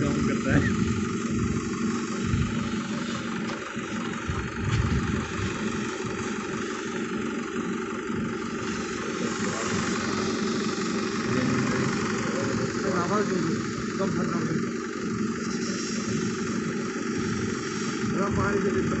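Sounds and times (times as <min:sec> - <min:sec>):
diesel engine idling: 0:00.0 - 0:19.0
steam hissing: 0:00.0 - 0:19.0.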